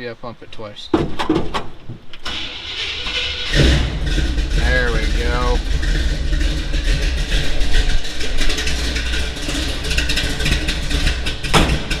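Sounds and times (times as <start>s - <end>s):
pickup truck engine running: 2.4s - 12.0s.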